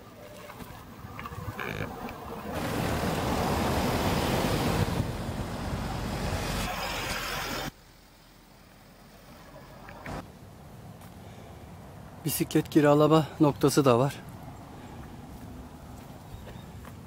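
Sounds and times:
car loud steady rush: 0.8s - 7.8s.

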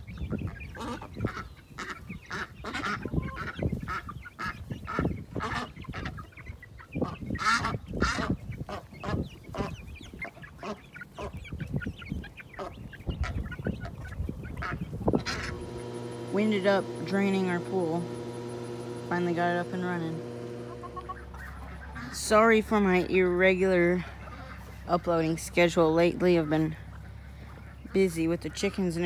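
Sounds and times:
wind rumble on microphone: 0.0s - 10.6s, 11.2s - 18.2s
chickens clucking: 0.0s - 29.0s
ducks quacking: 0.4s - 16.2s, 20.2s - 22.5s, 23.8s - 24.9s.

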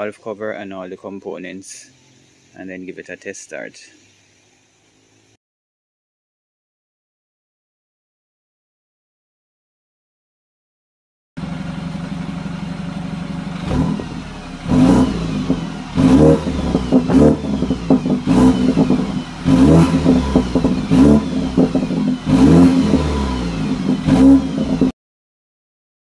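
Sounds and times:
car engine idling and revving: 11.4s - 24.9s.

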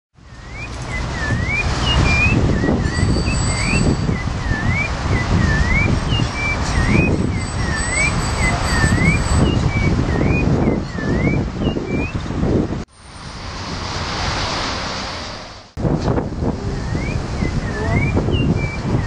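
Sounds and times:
bird whistling notes: 0.2s - 12.2s, 16.8s - 19.0s.

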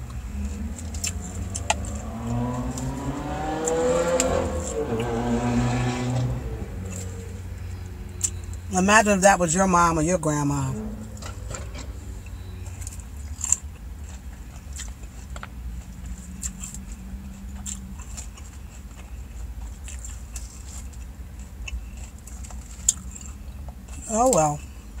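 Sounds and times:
person chewing crunchy salad: 0.0s - 4.0s, 11.3s - 24.0s
low steady rumble: 0.0s - 25.0s.

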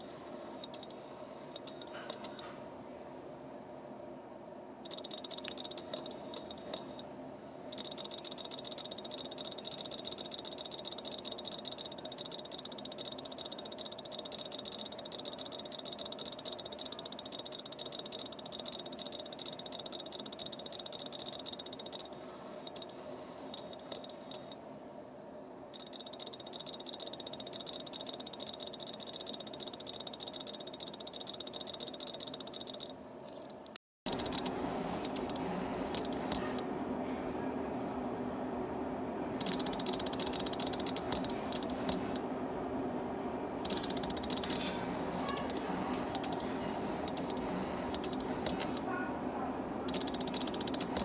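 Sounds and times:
steady low hum: 0.0s - 51.0s
lens motor buzzing chatter: 34.1s - 37.6s, 39.3s - 42.3s, 43.5s - 51.0s
distant jackhammer: 34.1s - 51.0s.

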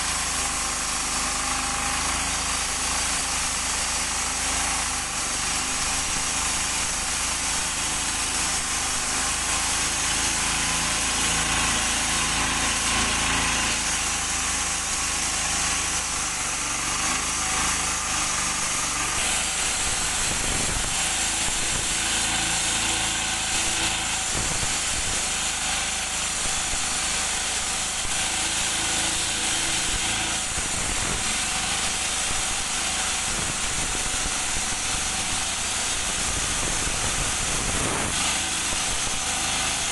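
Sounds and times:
concrete saw grinding: 0.0s - 39.9s
water spraying: 2.3s - 39.9s.

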